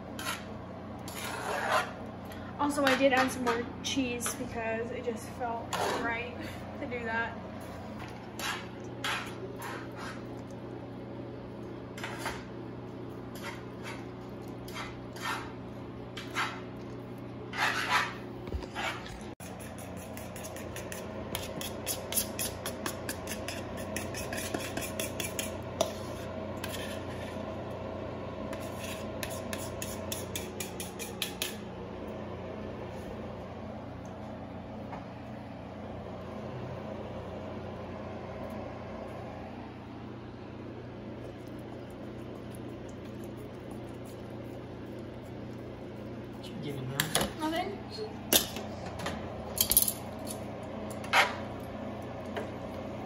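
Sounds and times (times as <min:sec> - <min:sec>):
fork scraping pan and bowl: 0:00.0 - 0:02.1, 0:02.8 - 0:03.6, 0:05.7 - 0:06.2, 0:08.0 - 0:10.4, 0:11.9 - 0:12.5, 0:13.3 - 0:16.9, 0:17.5 - 0:27.5, 0:28.5 - 0:31.6, 0:50.9 - 0:51.5
steady low hum: 0:00.0 - 0:53.0.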